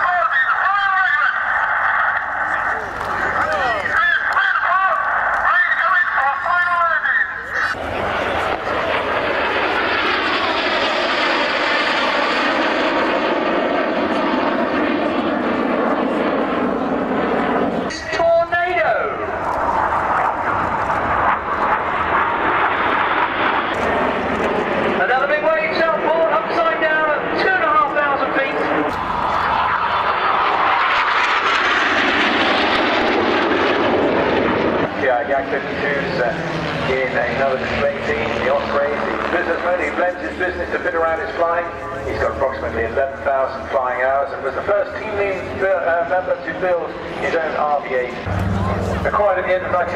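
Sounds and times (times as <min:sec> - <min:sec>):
jet engine flying overhead: 0:00.0 - 0:49.9.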